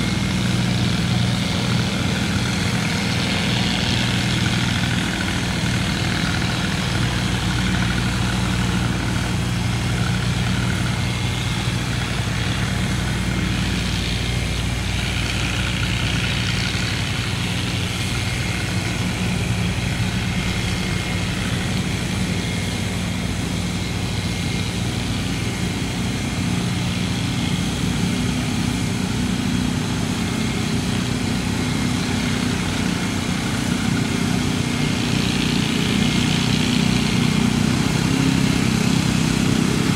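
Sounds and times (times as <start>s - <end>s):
boat engine droning: 0.0s - 39.9s.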